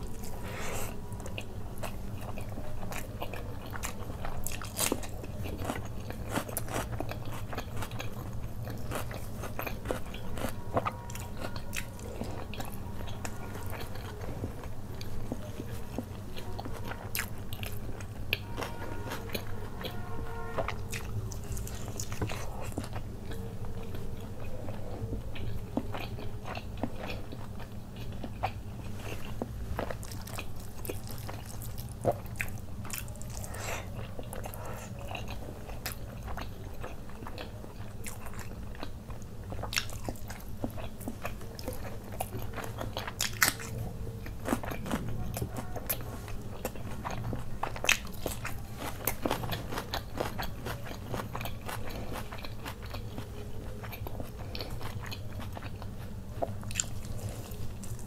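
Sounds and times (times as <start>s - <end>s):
man chewing food: 0.0s - 58.0s.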